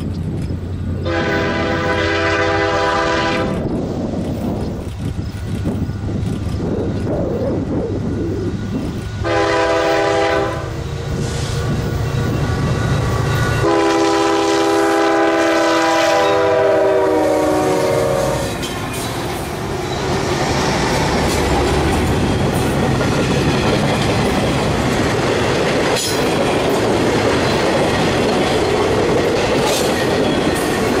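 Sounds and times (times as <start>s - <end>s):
locomotive engines droning: 0.0s - 31.0s
train wheels clacking on rails: 0.0s - 31.0s
diesel locomotive horn: 1.0s - 3.7s, 9.2s - 19.0s.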